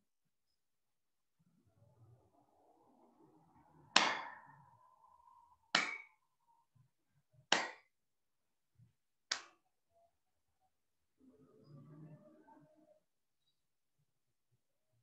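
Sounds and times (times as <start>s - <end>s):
sharp smacks: 4.0s - 4.4s, 5.7s - 6.1s, 7.5s - 7.9s, 9.3s - 9.6s.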